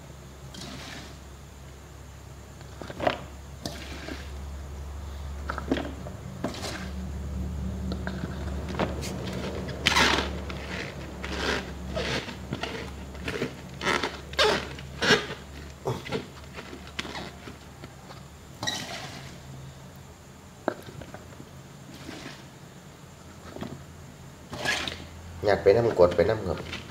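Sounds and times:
food scraping and knocking in plastic jar: 0:02.7 - 0:04.4, 0:05.5 - 0:07.0, 0:07.9 - 0:19.4, 0:20.7 - 0:22.5, 0:24.5 - 0:25.1, 0:25.8 - 0:26.9.

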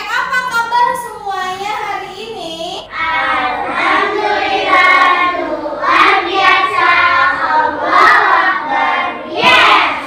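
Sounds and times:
children singing in unison: 0:02.9 - 0:10.0.

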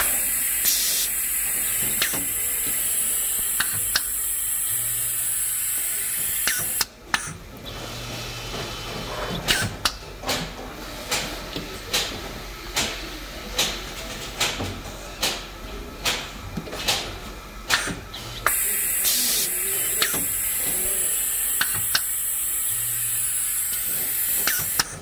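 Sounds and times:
compressed air hiss: 0:00.0 - 0:06.8, 0:17.7 - 0:25.0.

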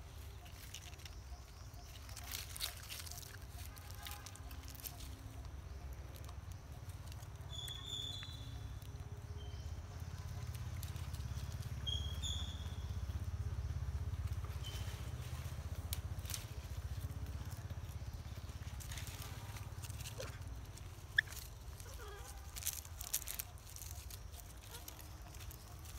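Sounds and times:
low fluttering rumble: 0:08.4 - 0:25.9.

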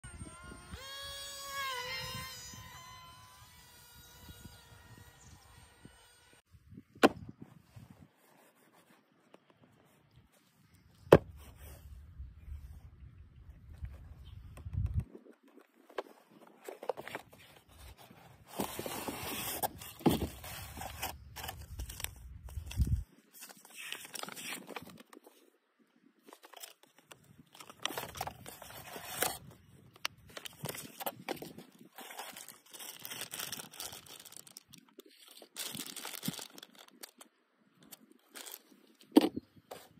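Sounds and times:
paper leaflet rustling and crinkling: 0:15.2 - 0:25.4, 0:30.2 - 0:39.9.

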